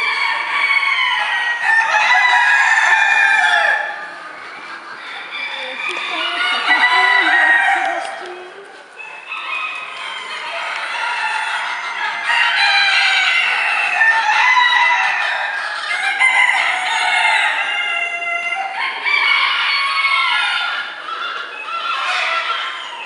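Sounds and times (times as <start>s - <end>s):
hens clucking: 0.0s - 23.0s
roosters crowing: 0.0s - 23.0s.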